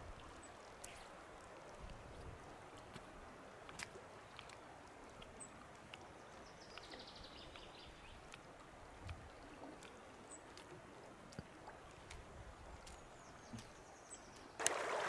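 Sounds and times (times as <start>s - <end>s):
river flowing: 0.0s - 15.0s.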